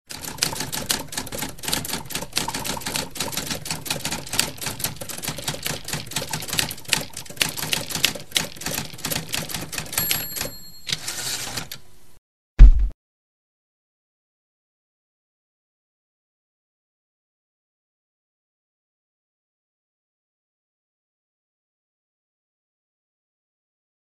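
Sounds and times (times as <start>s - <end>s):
typewriter carriage return rasp: 0.1s - 11.8s
typewriter keys clacking: 0.1s - 11.8s
typewriter bell ding: 9.8s - 11.7s
loud low thump: 12.6s - 13.0s.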